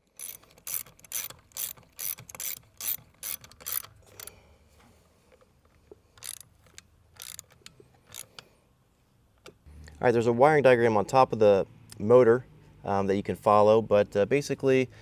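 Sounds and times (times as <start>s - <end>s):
hand ratchet clicking: 0.0s - 4.4s, 6.2s - 8.5s.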